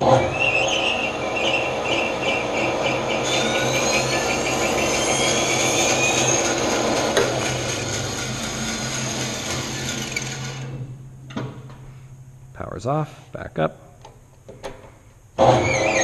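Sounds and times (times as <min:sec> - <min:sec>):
bandsaw running: 0:00.0 - 0:10.8
bandsaw blade cutting wood: 0:02.9 - 0:10.7.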